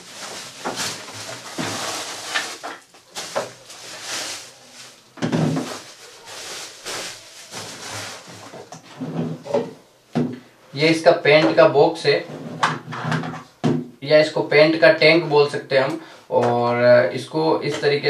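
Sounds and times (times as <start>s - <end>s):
plastic packaging crinkling: 0.0s - 8.8s.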